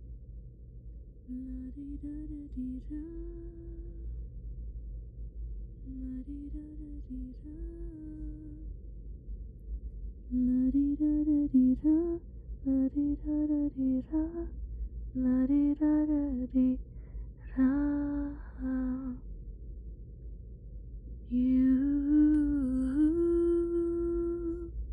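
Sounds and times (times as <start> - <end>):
woman humming a soft tune: 1.3 - 4.0, 5.9 - 8.7, 10.3 - 14.5, 15.2 - 16.8, 17.4 - 19.2, 21.3 - 24.8.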